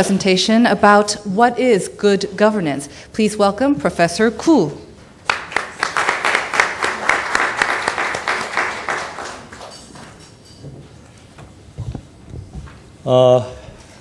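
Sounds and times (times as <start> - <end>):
audience applauding: 5.2 - 10.1.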